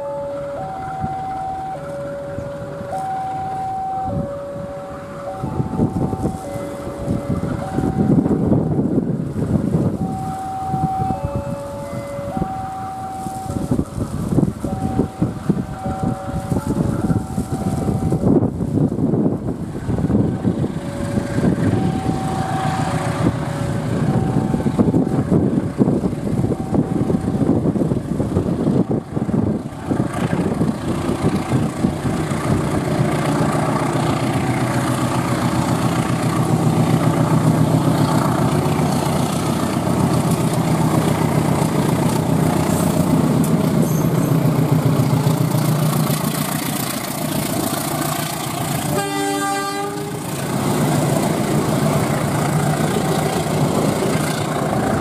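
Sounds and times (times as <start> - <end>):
diesel locomotive engine drone: 0.0 - 55.0
train horn: 14.8 - 18.2, 20.8 - 24.9, 47.2 - 51.1.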